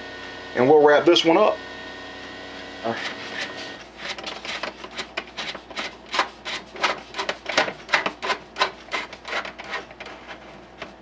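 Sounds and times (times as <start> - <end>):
scraping rubbing strokes: 2.9 - 11.0.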